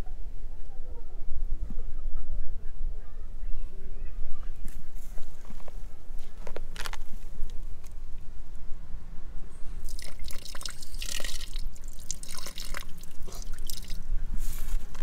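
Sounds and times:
water dripping onto metal grate: 9.8 - 14.0.

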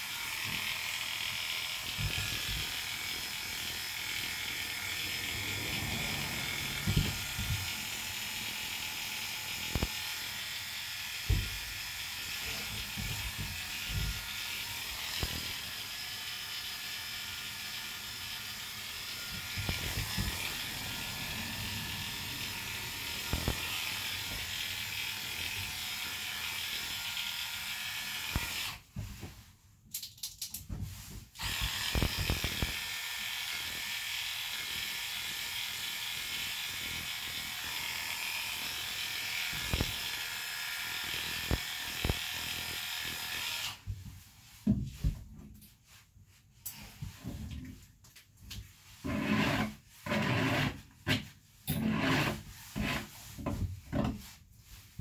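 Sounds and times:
dog clippers running: 0.0 - 28.7, 31.4 - 32.8.

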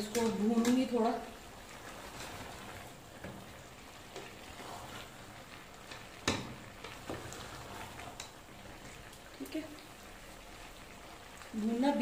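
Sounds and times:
wooden spoon scraping a pot: 0.0 - 9.1
curry frying hiss: 0.0 - 12.0.

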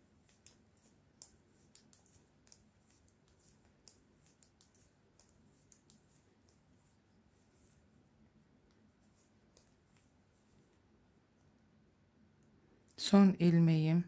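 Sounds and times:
knitting needles clicking: 0.2 - 6.7.

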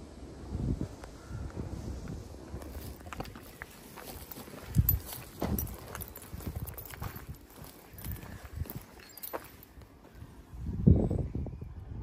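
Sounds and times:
footsteps on gravel: 2.6 - 10.2.

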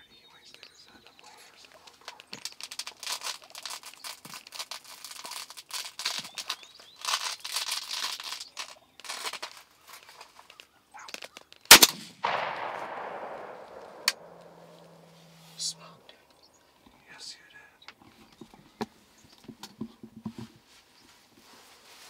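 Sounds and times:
shotgun blast: 11.7 - 15.8.

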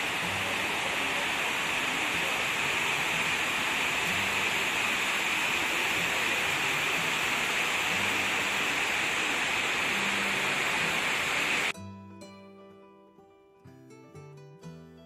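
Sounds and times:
water cascading into basin: 0.0 - 11.7.

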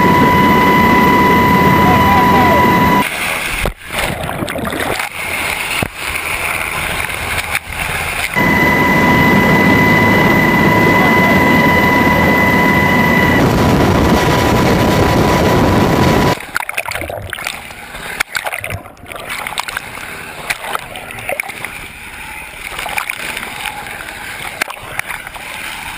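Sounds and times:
helicopter rotor and engine: 0.0 - 3.0, 6.1 - 16.4
waves splashing: 0.0 - 25.9.

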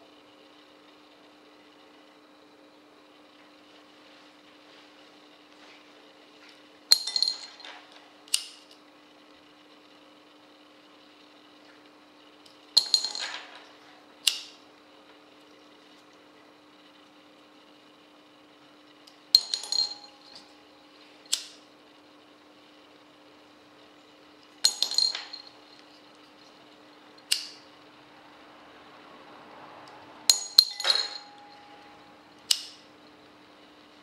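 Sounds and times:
faint steady hum: 0.0 - 34.0
ringing clink: 6.9 - 8.0, 12.8 - 13.8, 19.4 - 20.8, 24.6 - 26.6, 30.3 - 32.7.

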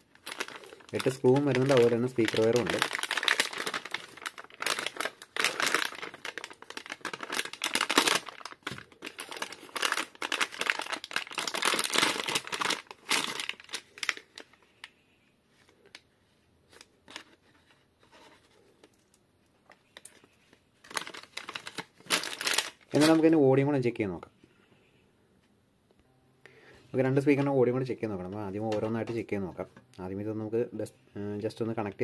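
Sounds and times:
plastic packaging crinkling: 0.0 - 14.6, 19.7 - 23.4.

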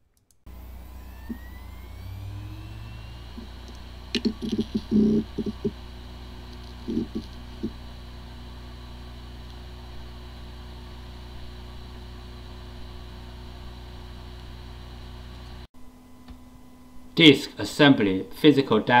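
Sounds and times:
hard drive spindle hum: 0.5 - 17.4
hard drive knocks: 4.2 - 5.8.

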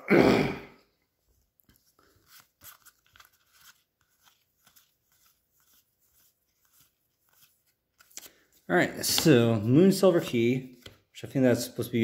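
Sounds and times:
cards rustling: 1.3 - 12.0
soft ticks of cards sliding: 1.4 - 9.6.

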